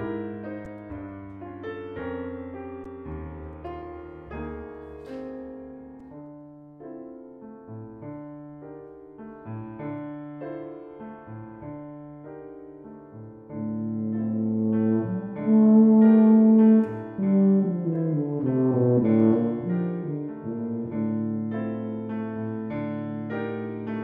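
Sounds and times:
piano chords and notes: 0:00.0 - 0:24.0
tuba low sustained note: 0:13.7 - 0:21.9.

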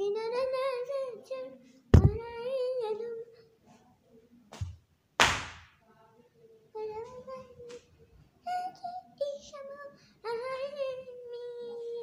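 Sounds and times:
short thump: 0:02.0 - 0:02.2
sharp loud knock: 0:04.6 - 0:05.7.

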